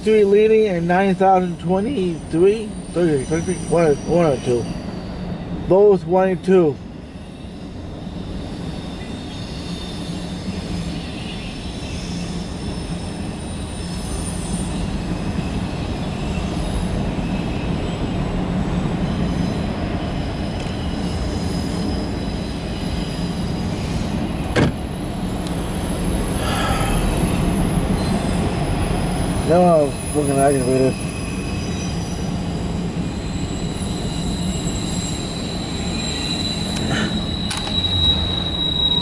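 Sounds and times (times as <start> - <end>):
train wheels rumbling on rail: 0.0 - 39.0
sharp knock: 24.6 - 24.8.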